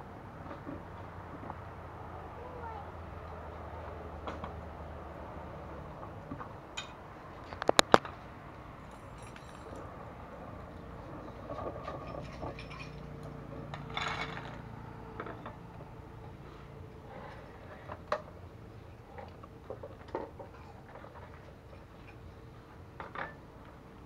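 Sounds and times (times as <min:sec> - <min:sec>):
shells and cookware clattering: 0:11.9 - 0:14.6.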